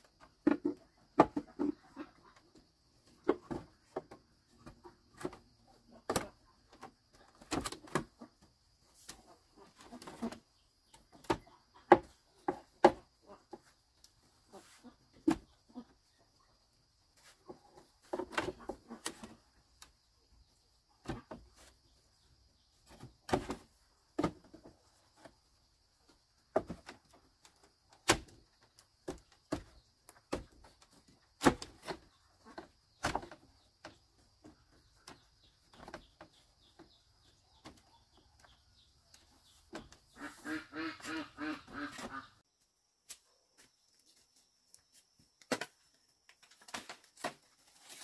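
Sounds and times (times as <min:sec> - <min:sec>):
duck quacking: 0:40.2 - 0:42.4.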